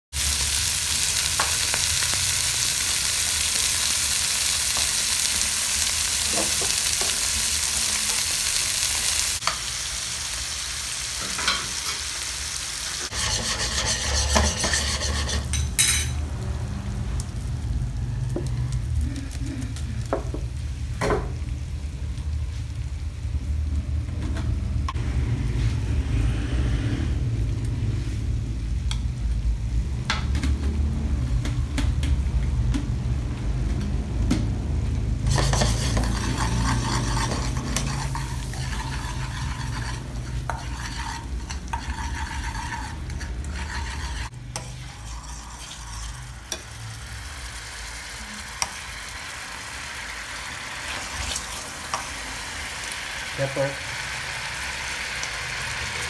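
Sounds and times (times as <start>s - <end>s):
sauce sizzling in a frying pan: 0.1s - 23.6s, 35.2s - 56.0s
metal ladle scraping pan: 13.0s - 16.2s, 35.2s - 46.8s.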